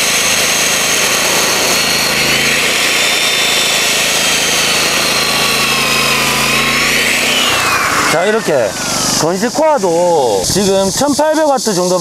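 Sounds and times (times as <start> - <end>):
generator running: 0.0 - 11.4
drill grinding into ground: 0.0 - 11.9
core drill motor whine: 0.0 - 12.0.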